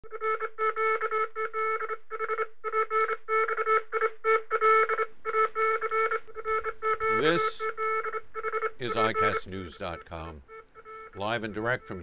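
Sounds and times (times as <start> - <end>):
electronic beeping: 5.2 - 12.0.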